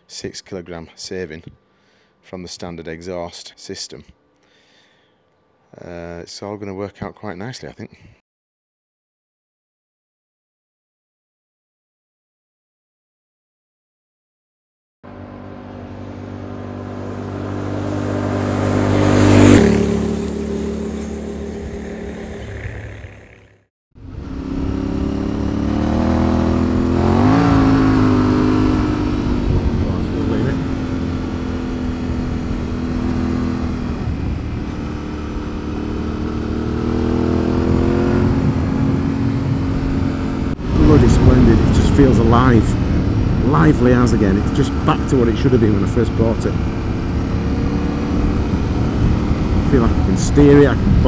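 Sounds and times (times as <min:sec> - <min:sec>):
motorcycle passing at speed: 0:15.1 - 0:51.0.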